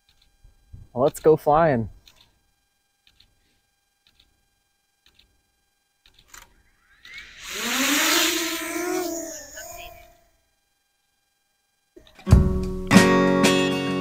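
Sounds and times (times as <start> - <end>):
drone propellers whirring: 6.5 - 10.4.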